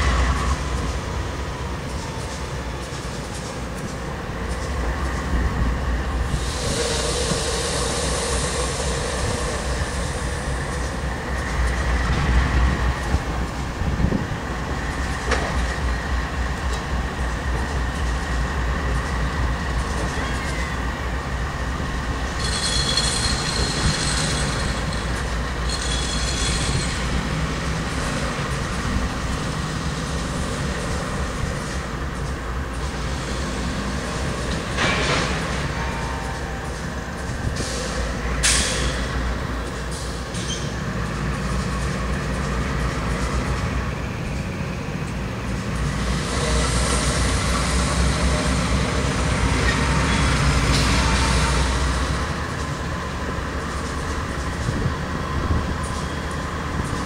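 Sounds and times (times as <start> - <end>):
diesel locomotive rumble: 0.0 - 57.0
train cars rolling on rails: 0.0 - 57.0
steel wheels squealing: 20.0 - 20.9, 22.4 - 27.5, 40.3 - 40.9.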